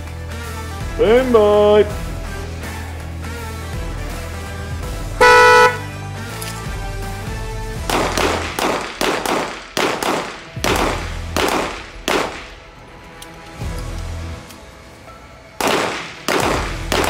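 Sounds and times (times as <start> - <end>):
pistol shots with echo: 7.9 - 12.7, 15.6 - 17.0.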